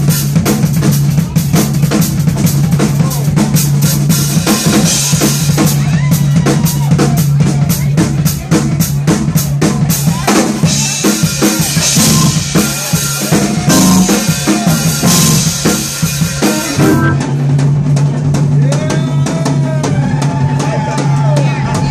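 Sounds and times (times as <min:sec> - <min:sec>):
funk jazz band playing: 0:00.0 - 0:21.2
kick and snare drum strokes: 0:06.5 - 0:21.0
cymbals washing: 0:10.6 - 0:17.5
low bass note: 0:13.7 - 0:14.3, 0:15.0 - 0:15.6, 0:16.6 - 0:17.4.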